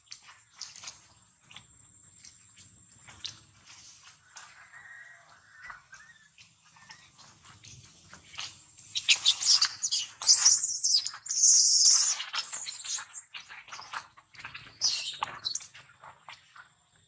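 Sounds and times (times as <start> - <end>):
baby monkey screaming: 9.0 - 13.2.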